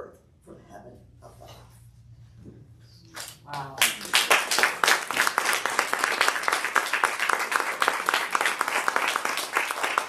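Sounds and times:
people clapping: 0:03.2 - 0:10.0.

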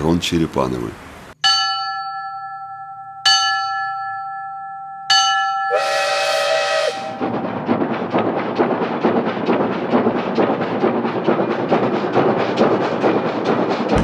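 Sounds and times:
small bell ringing: 0:01.4 - 0:05.8
hissing whistle blast: 0:05.7 - 0:07.2.

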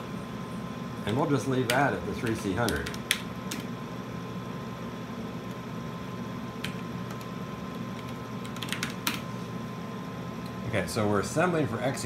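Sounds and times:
steady low hum: 0:00.0 - 0:12.0
keyboard keystrokes: 0:08.0 - 0:09.2.

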